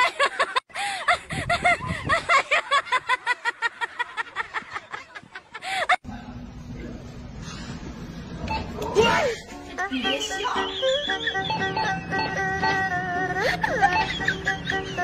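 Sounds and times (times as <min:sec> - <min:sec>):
high-pitched snickering laughter: 0:13.4 - 0:15.0.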